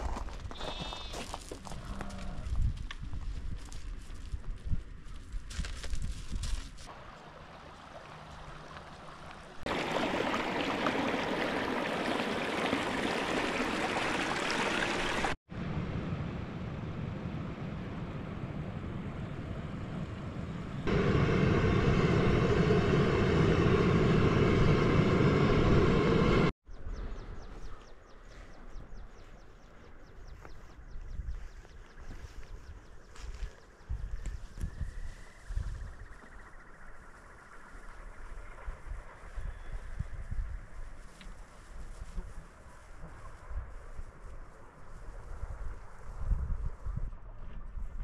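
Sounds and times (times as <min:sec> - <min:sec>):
rushing water: 0:06.9 - 0:15.4.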